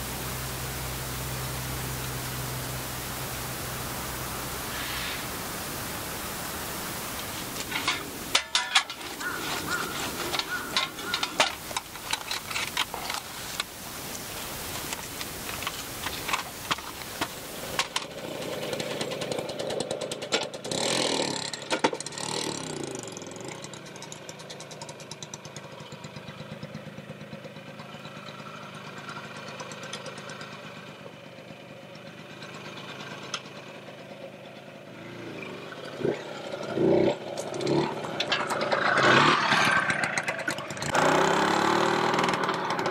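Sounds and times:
scooter engine running: 0.0s - 42.9s
metal camp stove clinking: 7.6s - 13.8s.

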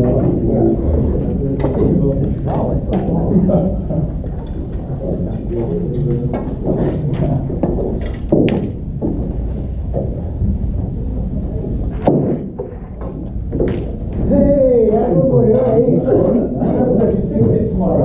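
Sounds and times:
snooker hall background noise: 0.0s - 18.0s
snooker balls clacking: 1.5s - 15.8s.

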